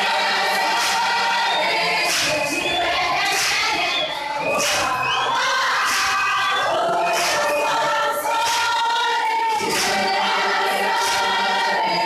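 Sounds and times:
crowd singing in chorus: 0.0s - 12.0s
hands clapping: 0.0s - 12.0s.

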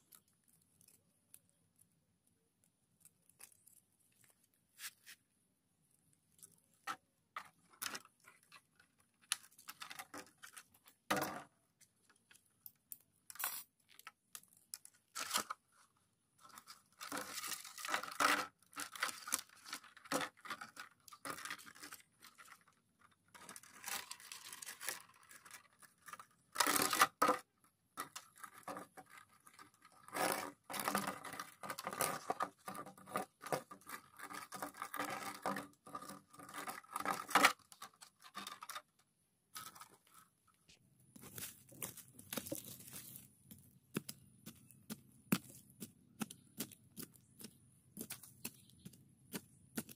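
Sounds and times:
plastic bottles crinkling: 6.3s - 40.4s, 41.2s - 49.9s.

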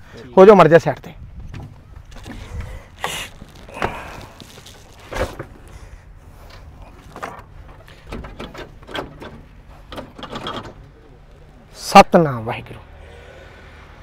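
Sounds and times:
short clunks and knocks: 6.5s - 10.9s.

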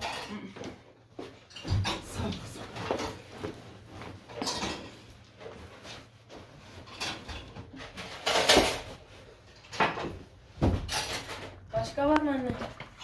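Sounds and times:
cushions rustling: 2.0s - 9.6s.

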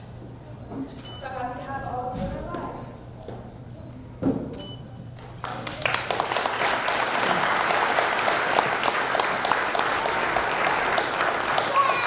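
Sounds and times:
guests applauding: 5.3s - 12.0s.

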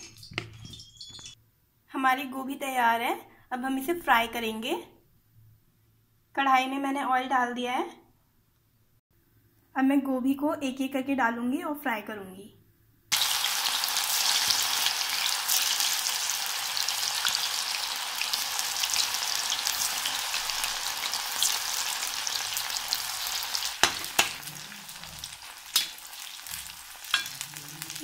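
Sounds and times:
deep-frying sizzle: 13.1s - 28.0s.

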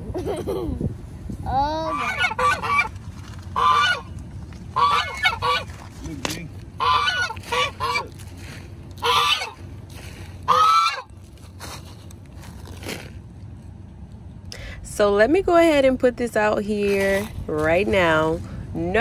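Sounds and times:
geese honking: 1.9s - 5.9s, 6.6s - 11.3s.

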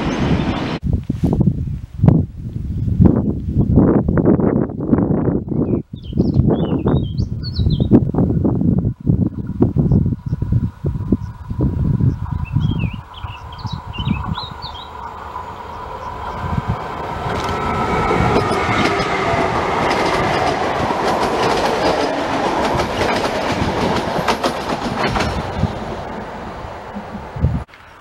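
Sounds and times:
train passing on rails: 0.0s - 0.8s, 8.2s - 28.0s
wind buffeting microphone: 0.0s - 27.8s
bird chirping: 5.5s - 8.0s, 12.0s - 16.6s
high whining tone: 11.1s - 21.4s
wheels clicking over rail joints: 14.2s - 25.8s.

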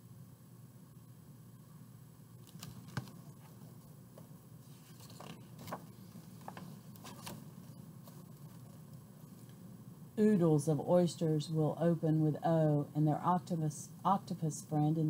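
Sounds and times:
book pages rustling: 2.4s - 9.5s.

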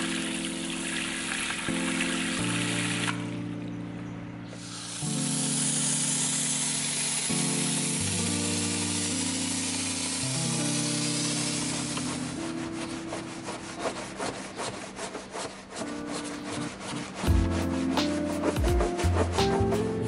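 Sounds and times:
spray hissing: 4.6s - 14.6s
stiff brush scrubbing rubber: 4.6s - 20.0s.

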